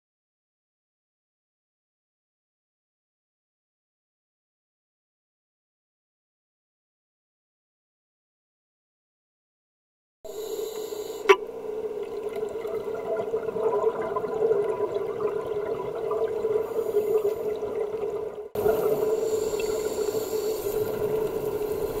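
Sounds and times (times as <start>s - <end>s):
muffled underwater hum: 10.3s - 18.0s, 18.6s - 22.0s.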